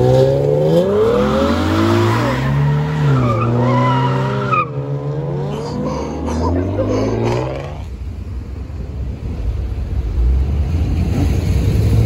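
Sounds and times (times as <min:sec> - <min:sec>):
car engine revving: 0:00.0 - 0:08.2
tires squealing: 0:00.7 - 0:07.9.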